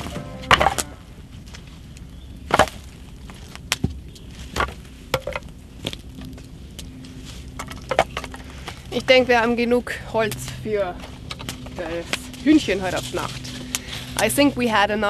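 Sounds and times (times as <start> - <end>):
dry branches knocking together: 0.0 - 15.0.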